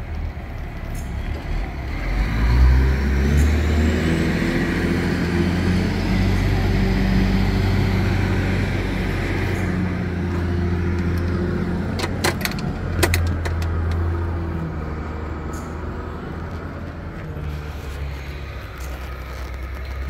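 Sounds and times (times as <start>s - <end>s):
low engine hum: 0.0s - 20.0s
truck door latch clicks and knocks: 12.0s - 14.0s.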